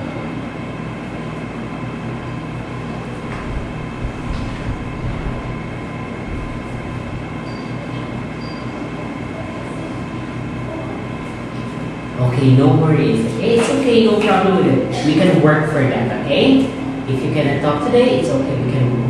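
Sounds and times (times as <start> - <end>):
mechanical hum and hiss: 0.0 - 19.0
soft low thumps: 3.3 - 7.2.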